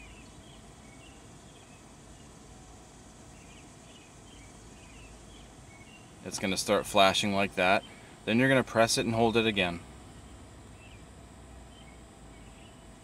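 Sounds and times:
faint bird chirps: 0.0s - 2.6s, 3.2s - 6.6s, 7.6s - 8.2s, 10.2s - 13.0s.

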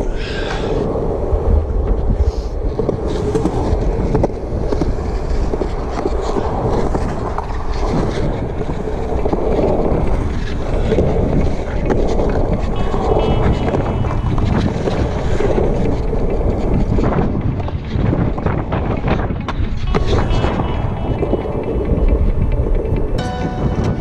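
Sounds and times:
skateboard wheels rolling on concrete: 0.0s - 24.0s
skateboard clacks: 0.6s - 24.0s.

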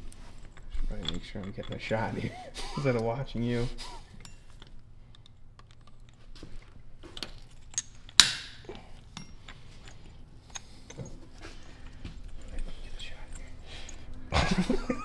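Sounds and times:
small metal parts clicking: 0.0s - 2.3s, 4.2s - 6.2s, 7.1s - 14.3s.

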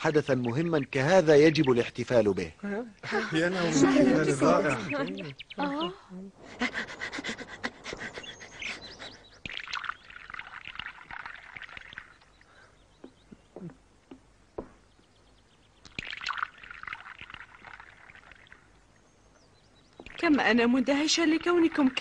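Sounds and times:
small birds chirping: 0.0s - 22.0s
tea pouring into cup: 15.9s - 18.7s.

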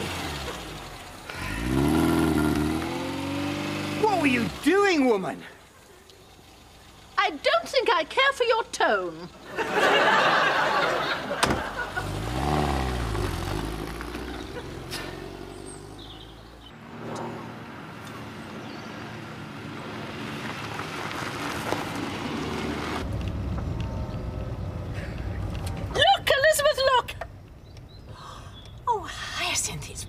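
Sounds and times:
car tyres hissing on road: 0.0s - 4.6s, 11.9s - 16.3s
small car engine revving: 0.0s - 4.8s, 11.6s - 17.5s.

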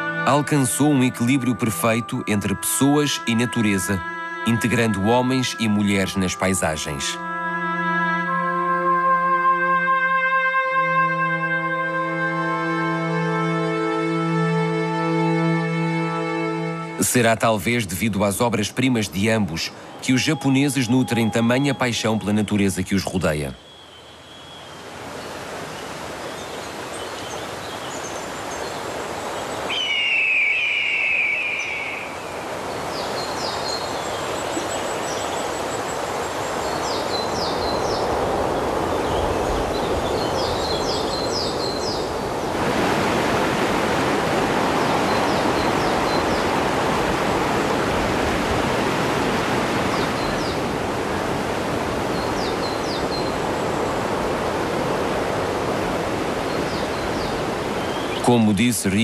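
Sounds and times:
small birds chirping: 18.7s - 42.5s, 44.3s - 47.2s, 49.8s - 51.3s, 52.0s - 54.7s, 56.4s - 58.7s
steady rushing noise: 32.0s - 58.4s.

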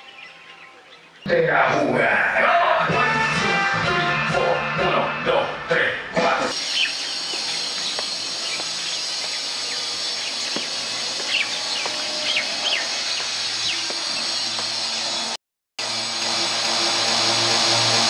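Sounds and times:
bird chirps: 0.0s - 1.3s, 6.6s - 15.4s
music: 2.8s - 6.5s
steady high hiss: 6.6s - 18.0s.

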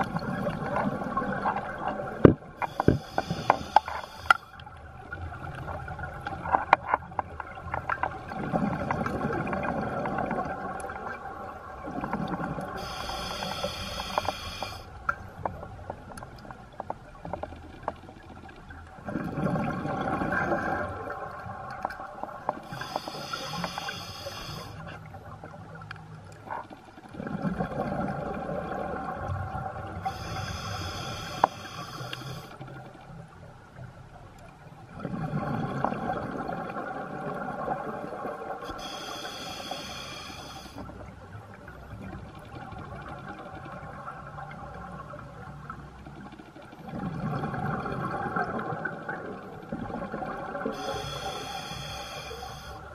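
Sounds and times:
hissing regulator inhale: 2.6s - 4.6s, 12.8s - 14.9s, 22.6s - 24.9s, 30.0s - 32.6s, 38.6s - 40.9s, 50.7s - 52.9s.

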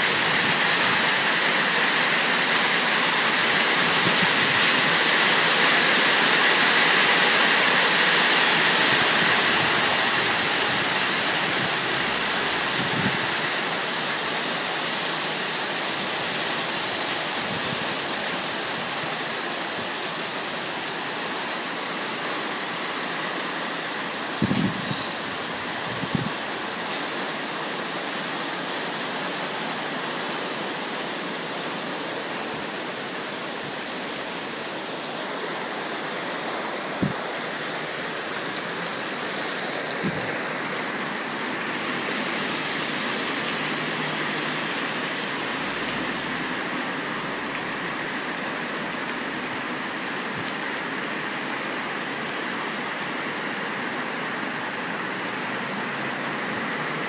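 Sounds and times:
rain and hail on pavement: 0.0s - 57.0s
rain splashing into water: 0.0s - 57.0s.

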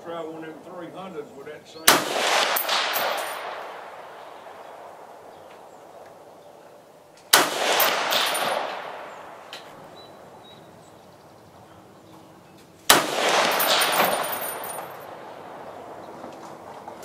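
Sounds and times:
rifle shots ringing: 1.8s - 6.3s, 7.3s - 10.4s, 12.9s - 16.0s.

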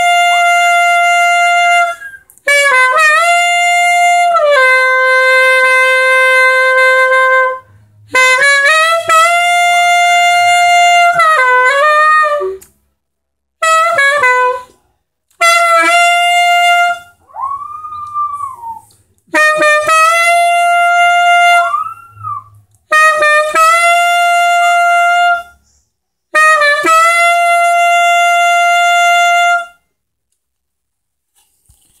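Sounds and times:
saxophone long held notes: 0.0s - 12.6s, 15.4s - 25.6s, 26.4s - 29.8s
dog howling: 17.2s - 18.8s.

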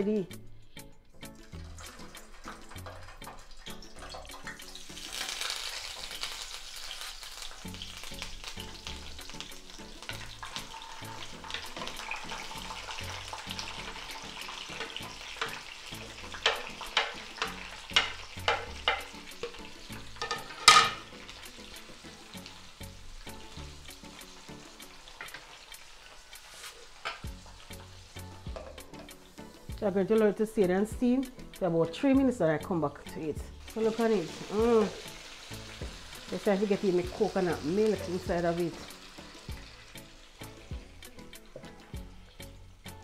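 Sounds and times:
vegetables sizzling in oil: 1.3s - 43.0s
wooden spoon knocking: 16.4s - 19.6s.

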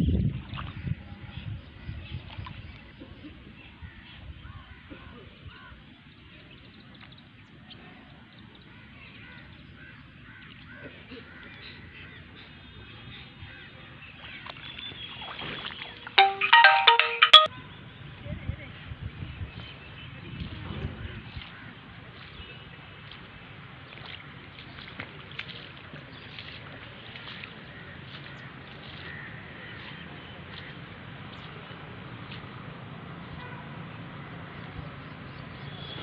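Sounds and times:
wind rumble on microphone: 0.0s - 2.9s, 18.0s - 22.0s.

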